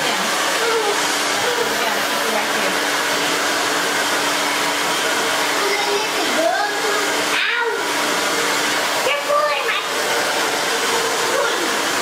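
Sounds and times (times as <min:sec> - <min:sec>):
hair dryer blowing: 0:00.0 - 0:12.0.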